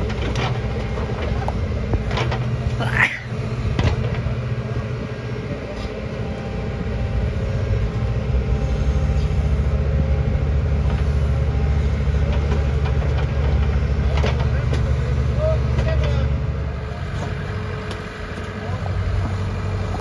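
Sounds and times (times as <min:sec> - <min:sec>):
backhoe diesel engine under load: 0:00.0 - 0:20.0.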